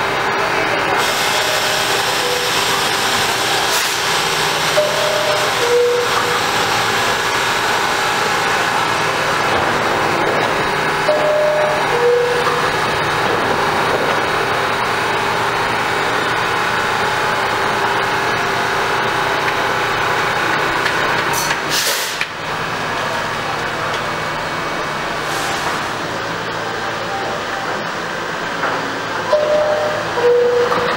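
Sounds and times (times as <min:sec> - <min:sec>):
train equipment hum: 0:00.0 - 0:30.9
platform noise: 0:04.7 - 0:07.6, 0:08.4 - 0:18.1, 0:25.8 - 0:30.9
brief hiss: 0:21.4 - 0:22.2.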